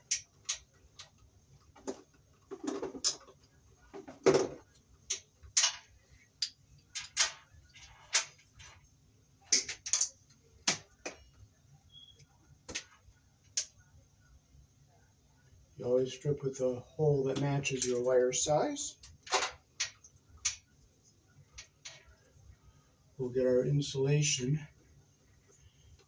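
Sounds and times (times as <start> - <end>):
wire strippers handling wires: 0.0 - 8.9, 9.5 - 13.8.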